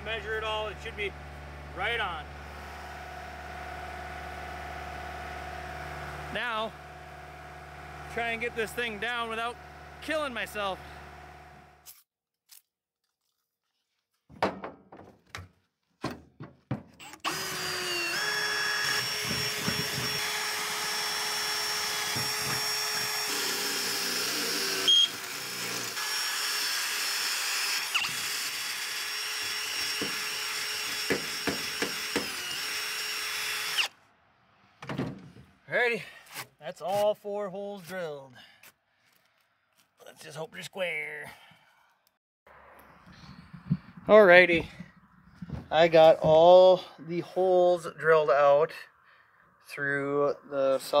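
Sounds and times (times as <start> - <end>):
drill boring through steel: 17.1 - 33.9.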